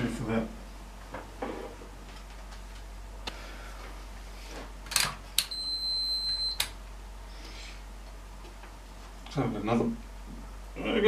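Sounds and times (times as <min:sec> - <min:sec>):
high-pitched meter beep: 0:05.5 - 0:06.6.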